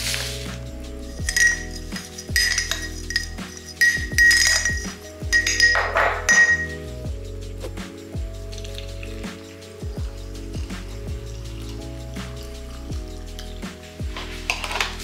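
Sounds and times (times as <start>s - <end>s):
background music with beat: 0.0s - 15.0s
utensil clinking against glass: 1.2s - 6.8s.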